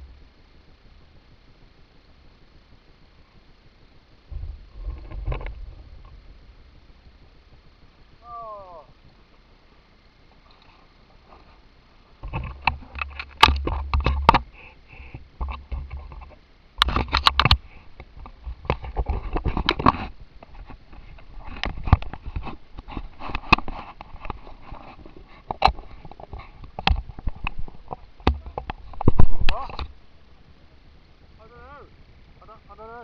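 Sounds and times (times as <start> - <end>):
wind rumbling on microphone: 0.0 - 9.5, 12.2 - 32.9
camera housing knocks and rubbing: 12.2 - 14.5, 15.4 - 17.6.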